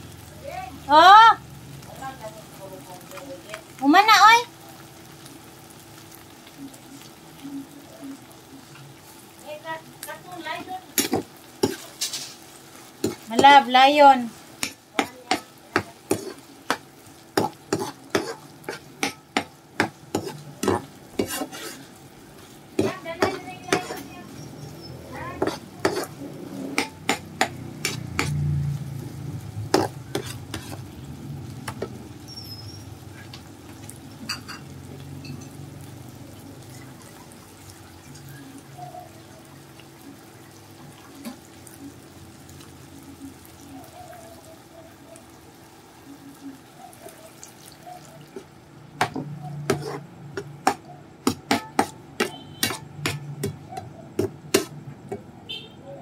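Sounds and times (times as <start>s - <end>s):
food sizzling in frying pan: 0.0s - 56.0s
spatula scraping and tapping pan: 10.6s - 13.8s, 14.6s - 28.6s, 29.6s - 30.9s, 31.6s - 32.0s, 33.1s - 35.7s, 48.3s - 55.3s.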